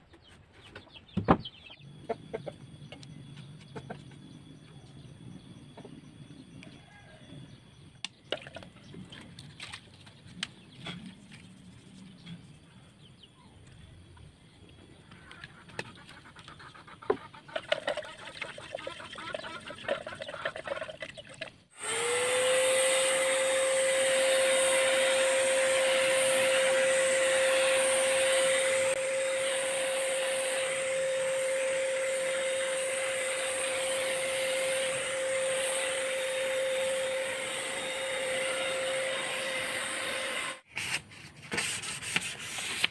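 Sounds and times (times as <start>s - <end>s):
electric paint sprayer hissing: 21.8s - 40.7s.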